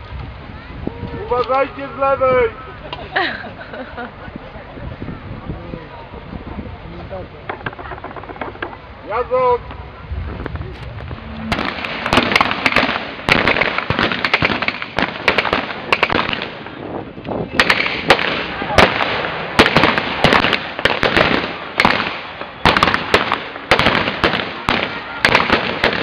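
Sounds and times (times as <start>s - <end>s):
blank gunfire: 11.5s - 16.6s, 17.6s - 26.0s.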